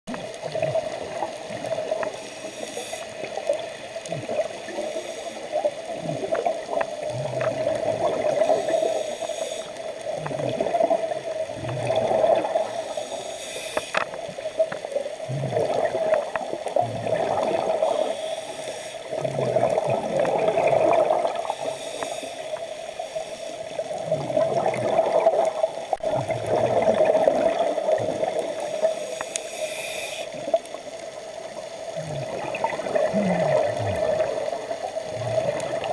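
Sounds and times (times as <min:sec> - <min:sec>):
bubbles gurgling: 0:00.1 - 0:02.2, 0:03.2 - 0:08.8, 0:10.0 - 0:13.0, 0:14.2 - 0:18.1, 0:19.0 - 0:21.7, 0:23.8 - 0:28.8, 0:30.3 - 0:35.9
underwater hiss: 0:00.2 - 0:35.9
diver breathing through regulator: 0:02.1 - 0:03.4, 0:04.7 - 0:05.7, 0:08.4 - 0:10.4, 0:11.7 - 0:14.1, 0:17.6 - 0:19.3, 0:21.4 - 0:24.0, 0:28.6 - 0:30.6.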